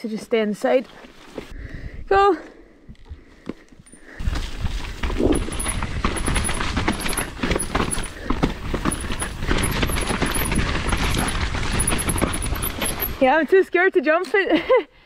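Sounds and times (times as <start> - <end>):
tyres and wind rumble: 1.3 - 14.0
bike chain and frame clattering: 3.9 - 13.4.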